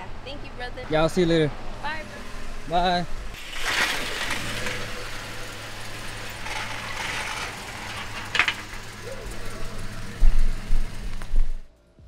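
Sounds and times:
car engine hum: 0:00.0 - 0:11.7
tyre hiss on wet road: 0:03.4 - 0:07.8
clatter of clicks: 0:06.4 - 0:09.2.

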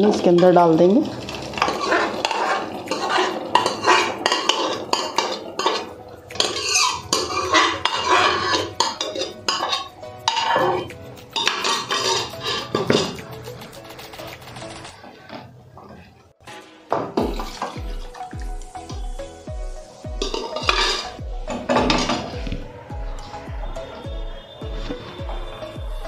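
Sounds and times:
spatula stirring: 0:00.0 - 0:14.9
metal knocking and scraping on metal: 0:01.4 - 0:13.5, 0:20.2 - 0:22.6.

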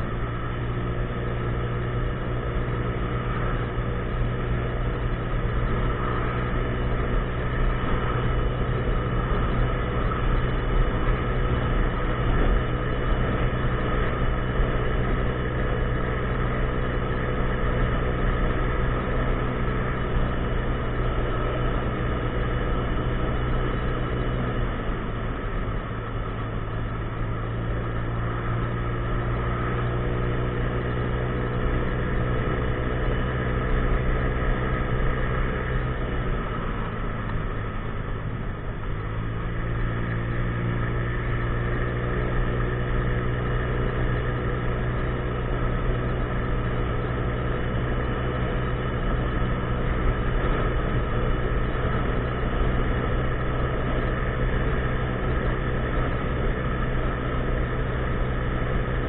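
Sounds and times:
scooter engine running: 0:00.0 - 0:59.0.

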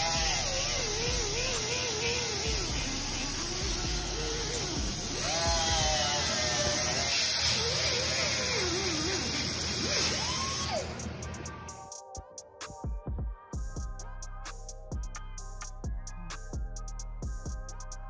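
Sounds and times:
die grinder grinding steel: 0:00.0 - 0:11.1.

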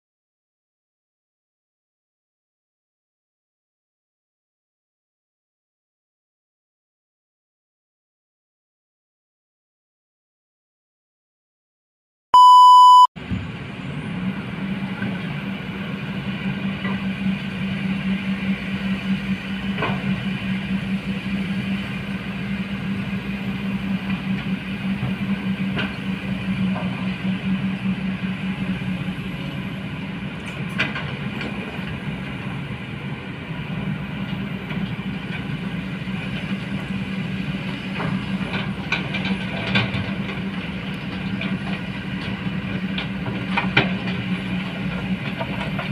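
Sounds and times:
loud pure beep: 0:12.4 - 0:13.1
excavator diesel engines running: 0:13.2 - 0:45.9.

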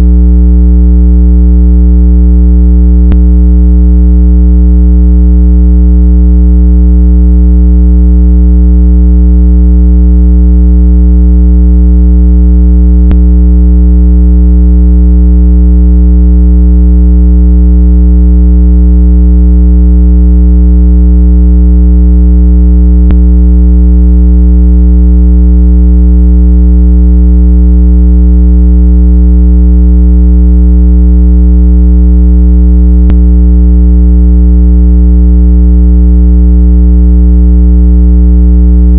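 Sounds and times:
loud low electronic tone: 0:03.0 - 0:03.3, 0:13.0 - 0:13.2.

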